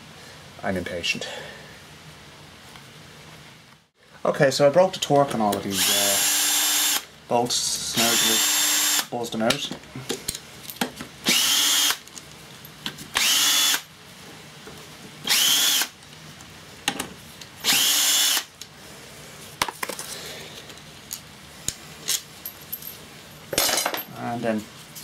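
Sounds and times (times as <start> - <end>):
cordless power driver buzzing: 5.7 - 7.1, 8.0 - 9.1, 11.3 - 12.0, 13.2 - 13.9, 15.3 - 16.0, 17.6 - 18.5.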